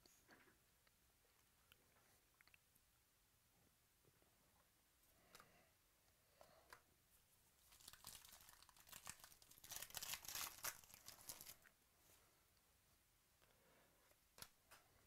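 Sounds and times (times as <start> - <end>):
wrapper tearing and crinkling: 7.6 - 11.6.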